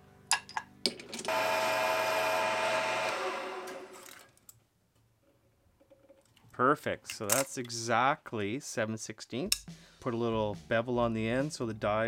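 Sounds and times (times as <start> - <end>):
metal lathe whining: 1.2 - 4.2.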